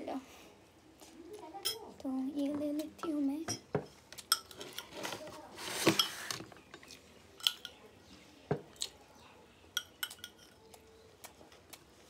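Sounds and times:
metal spoon clinking on glass: 0:01.6 - 0:01.9, 0:04.3 - 0:04.9, 0:07.4 - 0:07.8, 0:09.8 - 0:10.6.

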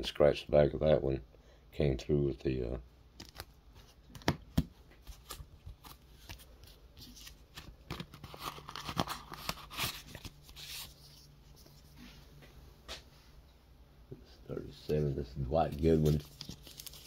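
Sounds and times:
paper envelope rustling: 0:05.0 - 0:12.0, 0:15.6 - 0:17.0.

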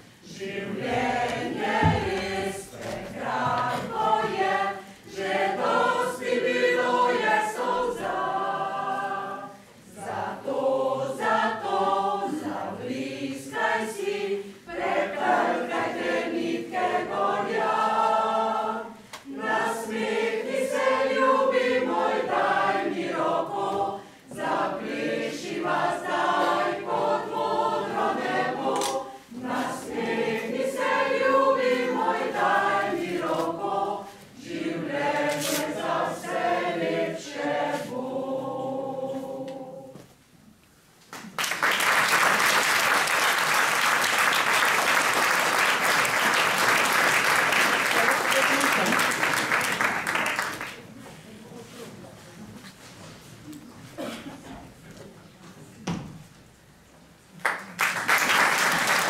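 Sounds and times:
mixed choir singing unaccompanied: 0:00.2 - 0:40.1.

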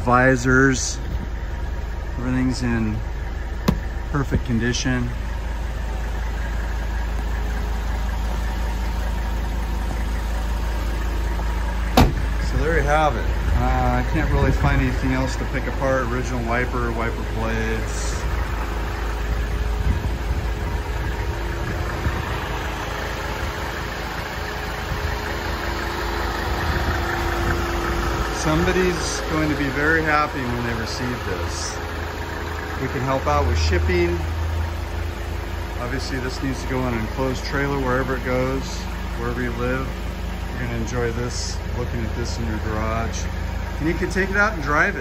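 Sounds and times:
diesel engine idling: 0:00.0 - 0:45.0.

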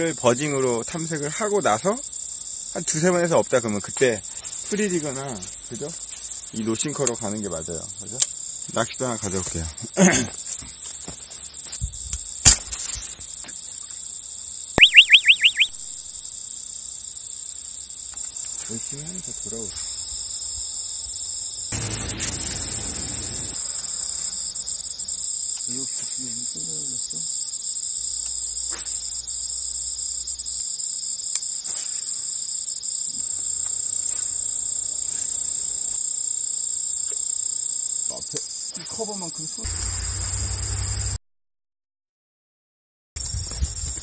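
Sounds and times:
insects chirring: 0:00.0 - 0:41.2, 0:43.2 - 0:44.0
cartoon rising whistles: 0:14.8 - 0:15.8.

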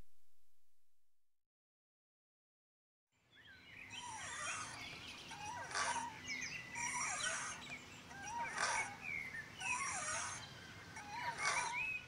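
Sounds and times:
swing chains squeaking: 0:04.0 - 0:04.8, 0:06.8 - 0:09.0.

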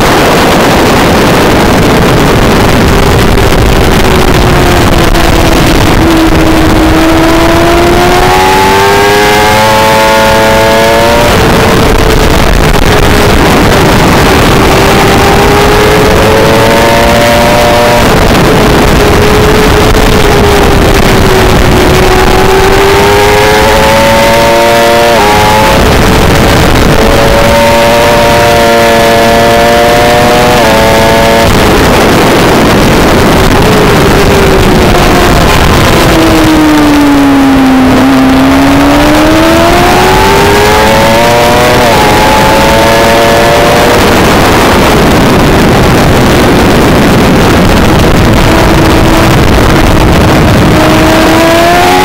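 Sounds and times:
sportbike engine accelerating: 0:00.0 - 0:52.0.

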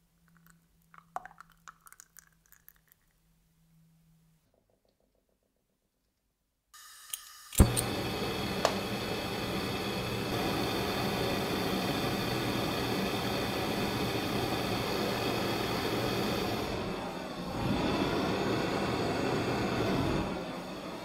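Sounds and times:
gas torch hissing: 0:06.8 - 0:21.0.

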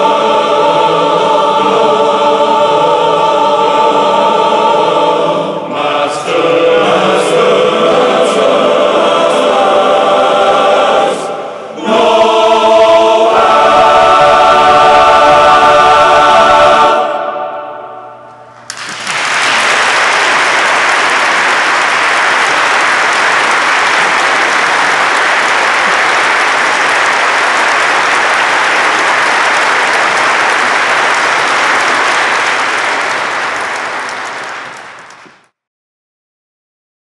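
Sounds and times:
audience applauding: 0:18.7 - 0:35.5.

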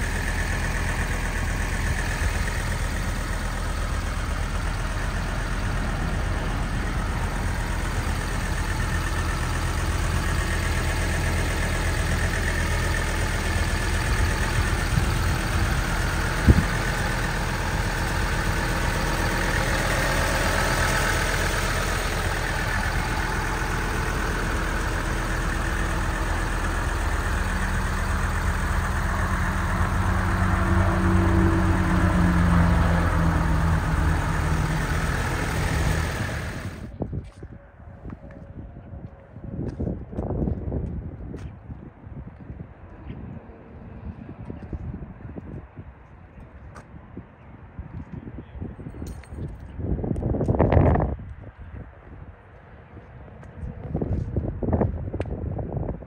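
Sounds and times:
diesel engine running: 0:00.0 - 0:48.1.

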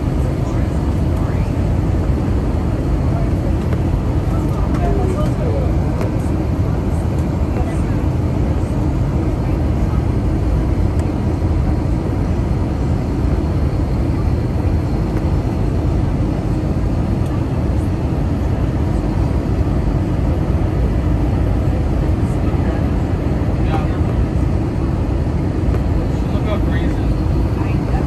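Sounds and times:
jet engines in flight: 0:00.0 - 0:28.0.

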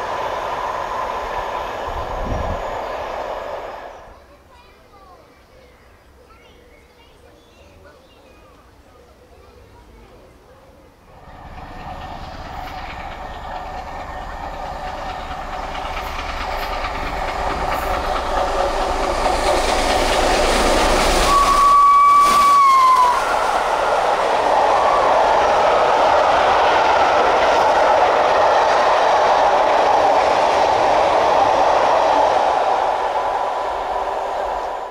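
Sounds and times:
wheels rattling on rails: 0:00.0 - 0:05.1, 0:11.0 - 0:34.9
steam locomotive approaching: 0:00.0 - 0:34.9
train whistle: 0:20.5 - 0:25.8.

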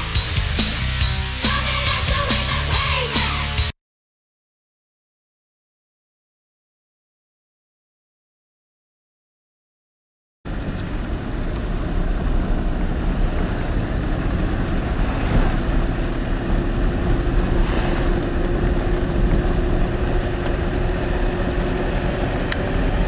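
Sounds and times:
car road and engine rumble: 0:10.5 - 0:23.0.

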